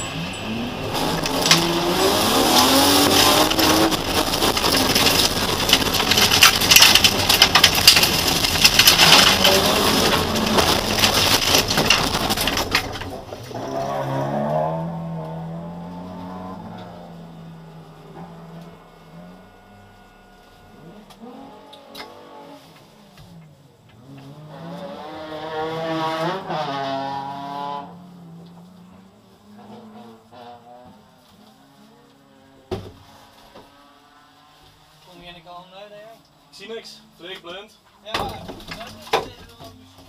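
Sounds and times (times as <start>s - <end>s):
race car engine: 0.0s - 35.5s
stones hitting car bodywork: 2.5s - 13.6s.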